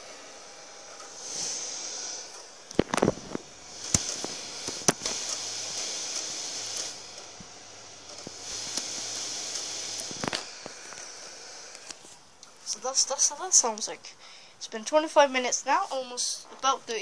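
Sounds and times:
cooling fan hissing: 0.0s - 17.0s
sharp clicks and knocks: 2.3s - 12.8s.

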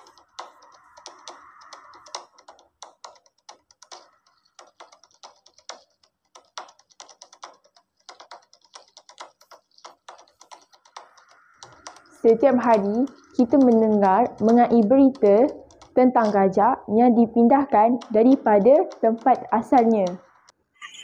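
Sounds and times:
keyboard typing: 0.0s - 21.0s.

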